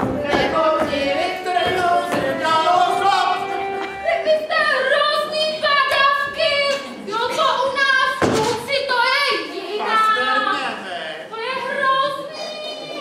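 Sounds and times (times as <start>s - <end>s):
music with singing: 0.0s - 7.0s.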